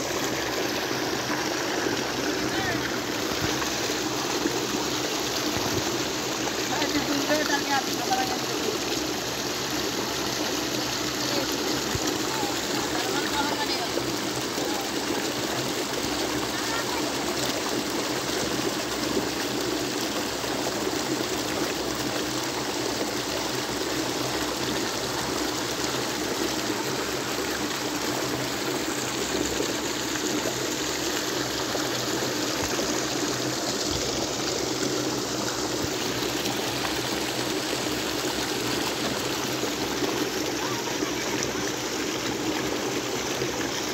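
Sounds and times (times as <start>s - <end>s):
water pouring over weir: 0.0s - 43.9s.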